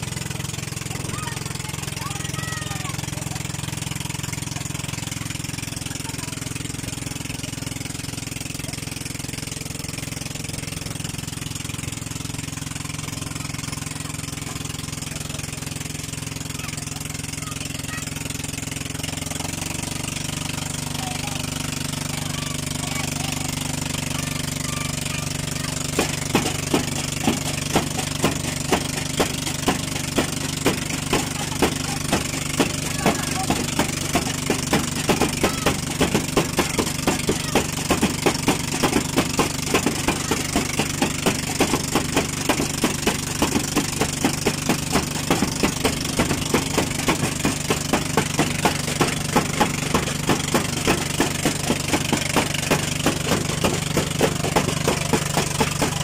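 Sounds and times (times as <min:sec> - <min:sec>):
boat engine running: 0:00.0 - 0:56.0
sharp knocks: 0:25.8 - 0:56.0.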